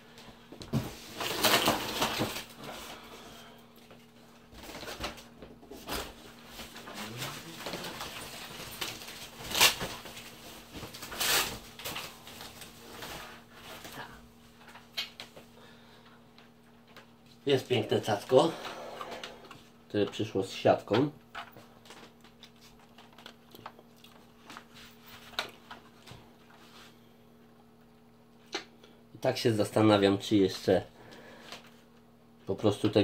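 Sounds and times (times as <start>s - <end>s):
plastic packaging crinkling: 1.0s - 2.6s, 6.3s - 13.9s.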